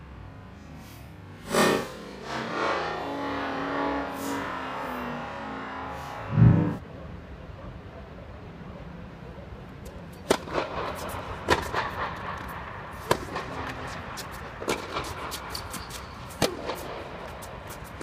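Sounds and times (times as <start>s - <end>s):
tennis balls struck with rackets: 10.1s - 18.0s.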